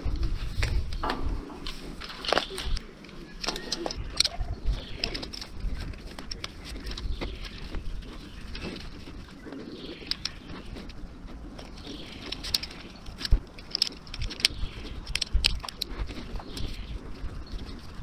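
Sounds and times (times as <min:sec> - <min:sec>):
sharp clicks and knocks: 0:00.0 - 0:18.0
pigeon cooing: 0:02.2 - 0:13.2.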